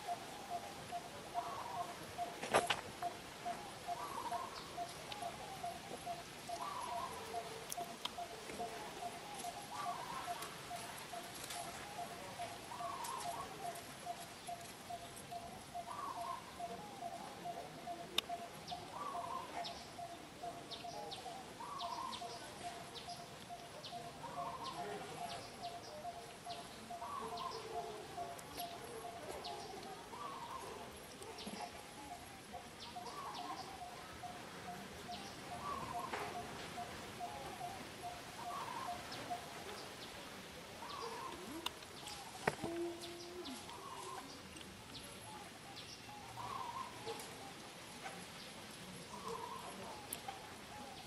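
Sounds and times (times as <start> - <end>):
bird calling: 0.0 - 40.2, 40.8 - 48.2, 49.1 - 51.0
faint outdoor hiss: 0.0 - 51.0.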